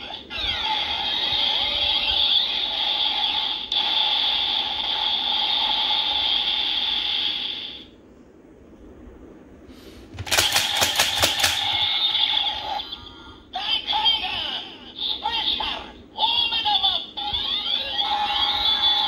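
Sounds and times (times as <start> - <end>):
toy click: 10.2 - 11.8.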